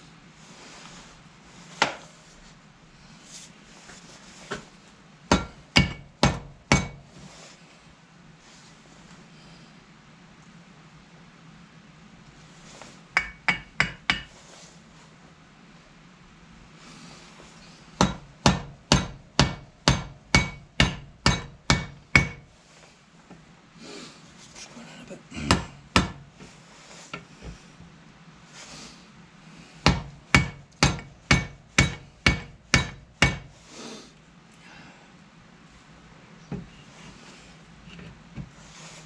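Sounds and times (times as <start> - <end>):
hammer striking metal rivets: 5.3 - 7.0, 13.2 - 14.3, 18.0 - 22.4, 25.5 - 26.3, 29.9 - 33.5.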